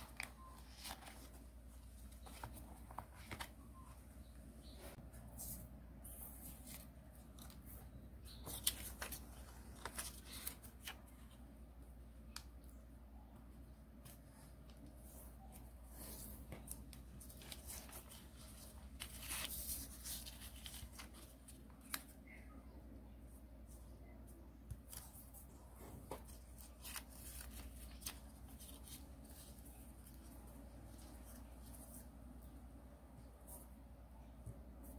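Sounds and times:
paper rustling and crinkling: 0.0 - 4.0, 5.4 - 11.4, 15.0 - 22.4, 24.7 - 32.3
faint low hum: 0.0 - 34.9.

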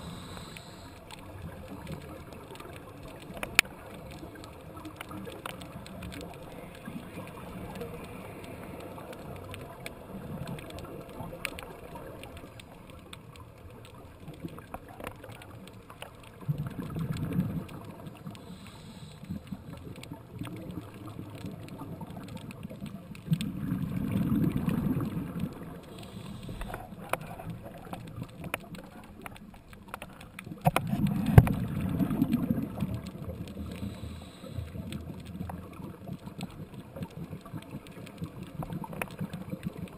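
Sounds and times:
steady hiss: 0.0 - 4.9, 5.6 - 13.0, 17.8 - 20.2, 24.0 - 29.0, 31.2 - 35.8
underwater bubbling rumbles: 1.1 - 18.4, 19.2 - 39.9.

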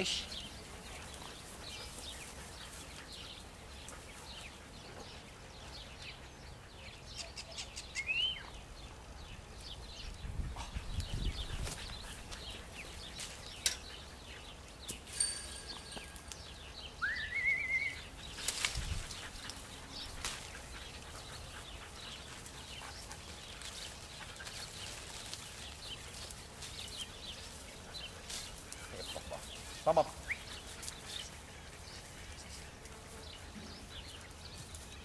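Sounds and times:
rustles on dry grass: 8.6 - 35.0.

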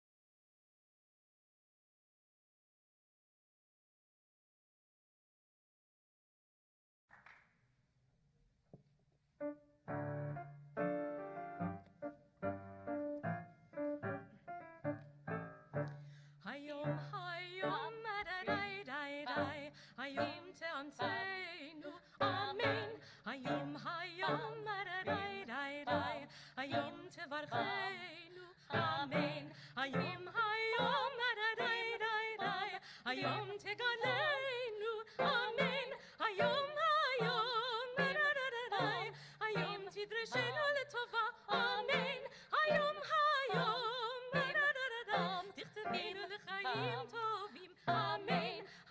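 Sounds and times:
women singing operatic duet: 16.4 - 48.9.

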